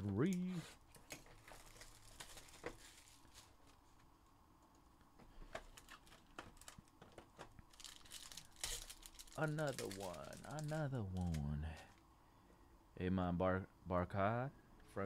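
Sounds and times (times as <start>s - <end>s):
plastic wrapper crinkling: 0.9s - 4.1s, 5.6s - 12.0s.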